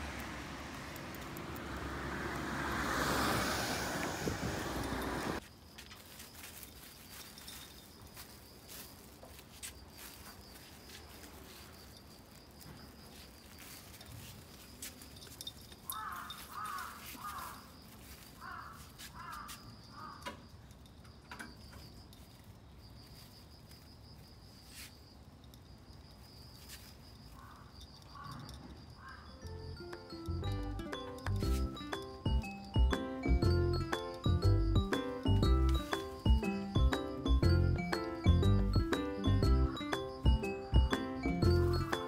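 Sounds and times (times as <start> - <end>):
crow cawing: 15.9 - 17.7, 18.4 - 20.4, 27.4 - 29.4.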